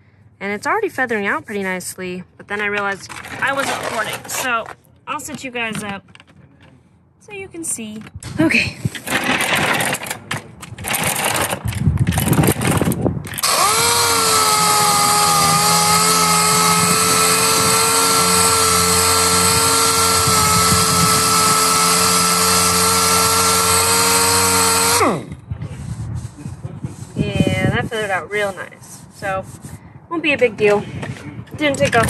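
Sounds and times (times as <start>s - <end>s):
clatter and handling noise: 2.6s - 6.8s, 8.9s - 13.5s
orbital sander running: 13.4s - 25.2s.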